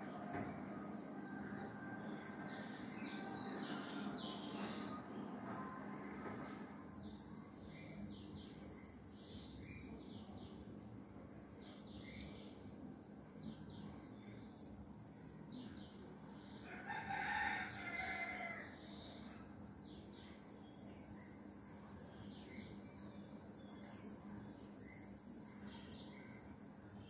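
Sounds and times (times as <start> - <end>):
faint high-pitched hum: 0.0 - 27.0
rooster crowing: 16.6 - 18.8.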